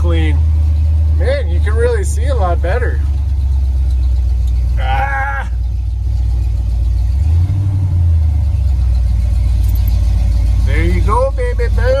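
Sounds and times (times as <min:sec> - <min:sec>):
road noise: 0:00.0 - 0:12.0
truck engine drone: 0:00.0 - 0:12.0.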